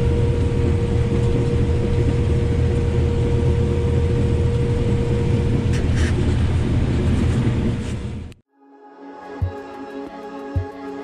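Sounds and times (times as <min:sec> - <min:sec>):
steady machine whine: 0:00.0 - 0:06.9
combine engine drone: 0:00.0 - 0:08.4.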